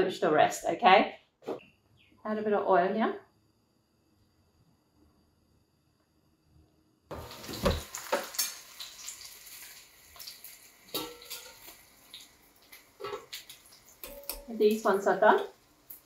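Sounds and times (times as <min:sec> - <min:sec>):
food sizzling in oil: 0:07.1 - 0:16.0
tongs knocking against pan: 0:11.0 - 0:11.6.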